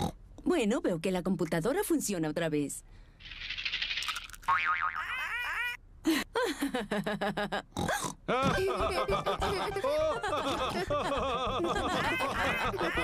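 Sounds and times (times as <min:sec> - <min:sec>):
cartoon voices laughing: 0:05.0 - 0:05.8, 0:08.3 - 0:13.0.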